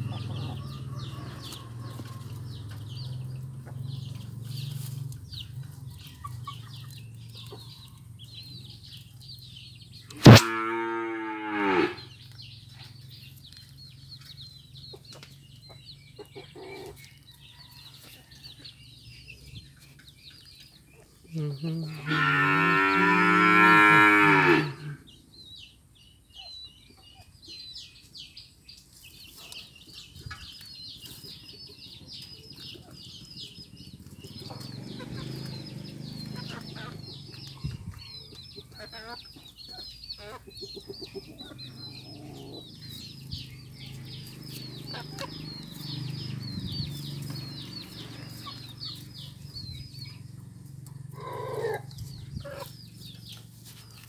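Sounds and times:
small birds chirping: 0:00.0 - 0:54.0
cow mooing: 0:10.2 - 0:12.1, 0:21.8 - 0:25.0.

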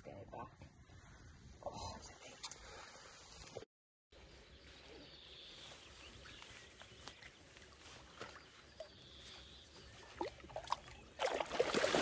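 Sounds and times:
water splashing and dripping: 0:10.0 - 0:12.0.

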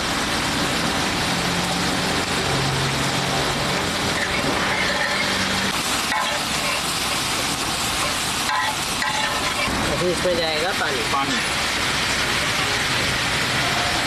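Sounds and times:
paste sizzling in hot oil: 0:01.7 - 0:14.0
spatula stirring on griddle: 0:04.1 - 0:10.2.

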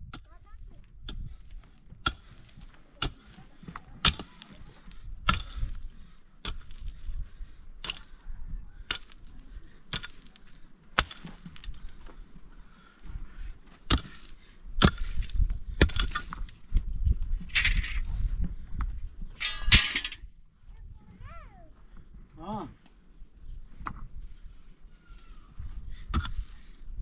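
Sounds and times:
hand tool striking hard material: 0:02.0 - 0:04.6, 0:05.2 - 0:05.8, 0:06.4 - 0:07.0, 0:07.8 - 0:08.2, 0:08.9 - 0:09.2, 0:09.9 - 0:11.4, 0:13.9 - 0:16.5.

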